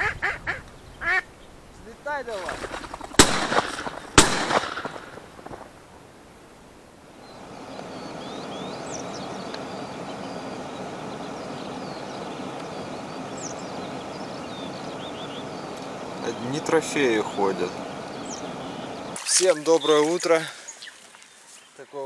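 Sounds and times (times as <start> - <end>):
outdoor background noise: 0.0 - 22.0
small birds chirping faintly: 0.0 - 22.0
shotgun shot echoing: 3.1 - 5.6.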